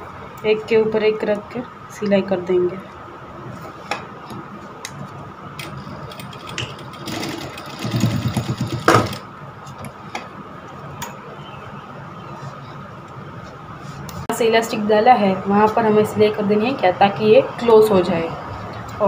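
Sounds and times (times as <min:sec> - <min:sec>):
sewing machine stitching: 0:06.1 - 0:09.2.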